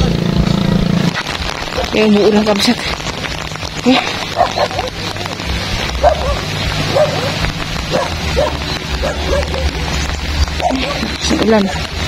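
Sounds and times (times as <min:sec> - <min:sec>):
heavy rain hissing: 0:00.0 - 0:12.0
dog barking: 0:04.3 - 0:05.0, 0:06.0 - 0:09.8, 0:10.6 - 0:11.0.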